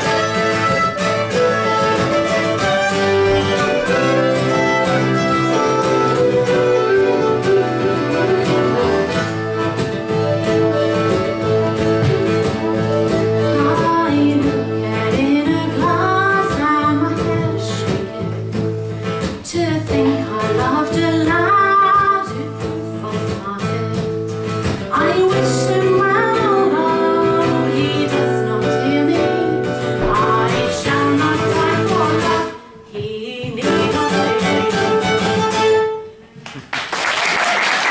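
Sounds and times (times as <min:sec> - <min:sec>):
folk band playing: 0:00.0 - 0:32.7, 0:33.5 - 0:36.4
woman singing: 0:13.3 - 0:35.0.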